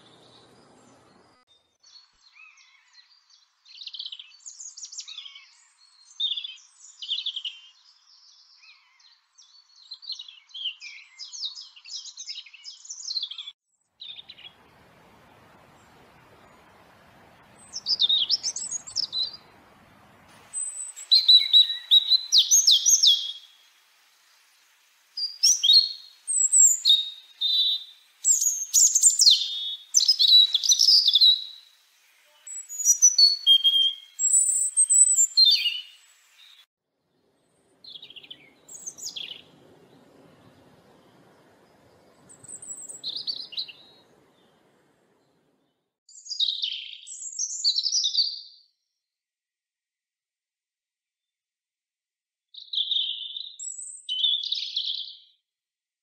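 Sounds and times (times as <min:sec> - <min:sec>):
robin singing: 0:00.0 - 0:07.7, 0:17.5 - 0:19.8, 0:20.4 - 0:23.9, 0:25.2 - 0:36.6, 0:37.4 - 0:45.4, 0:52.6 - 0:55.2.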